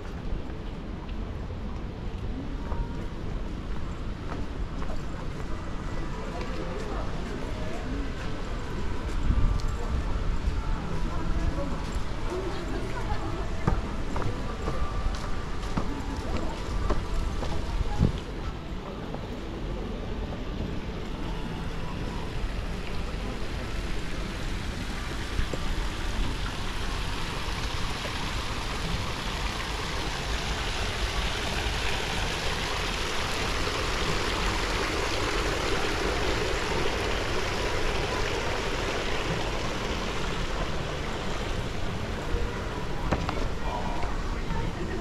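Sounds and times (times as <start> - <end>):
fountain water splashing into pool: 20.9 - 45.0.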